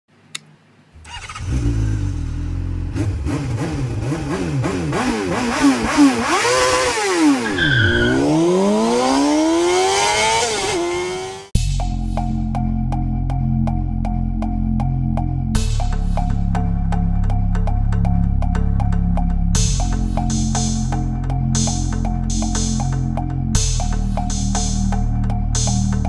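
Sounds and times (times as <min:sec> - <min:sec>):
motorcycle engine revving: 0:01.0 - 0:11.6
music with steady beat: 0:11.6 - 0:26.0.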